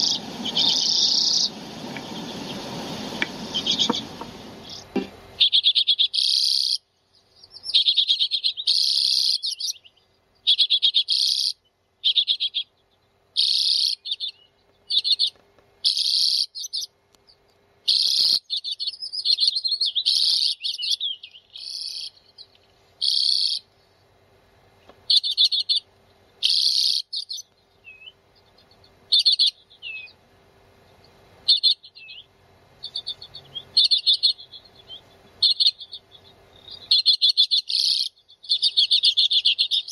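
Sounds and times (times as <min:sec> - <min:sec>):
birds chattering trills: 0:00.0 - 0:39.9.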